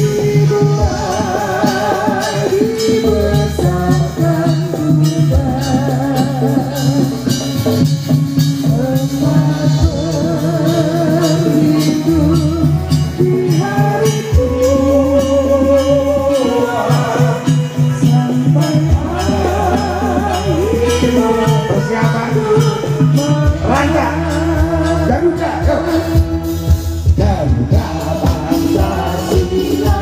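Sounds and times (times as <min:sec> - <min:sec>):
hand percussion: 0:00.0 - 0:30.0
person singing ornamented melody: 0:00.0 - 0:30.0
sustained low bass notes: 0:00.0 - 0:30.0.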